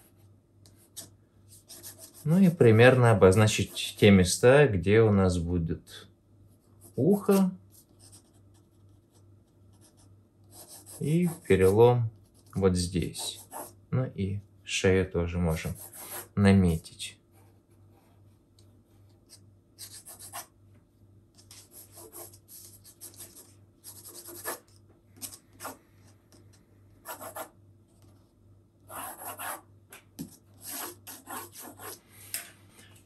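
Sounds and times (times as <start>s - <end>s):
faint steady hum: 0.0s - 33.0s
pencil scratching on paper: 0.8s - 4.1s, 6.8s - 13.8s, 15.6s - 16.4s, 19.8s - 20.5s, 21.6s - 24.7s, 27.1s - 27.6s, 28.9s - 29.7s, 30.6s - 32.0s.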